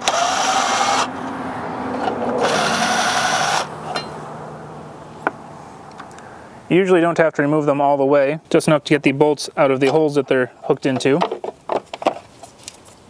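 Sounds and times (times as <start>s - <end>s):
cordless drill spinning: 0.0s - 1.1s, 2.0s - 3.7s.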